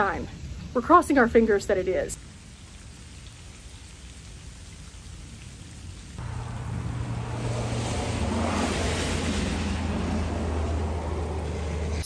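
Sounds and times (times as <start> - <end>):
rain falling on puddles: 0.0 - 12.0
low rumble: 6.2 - 12.0.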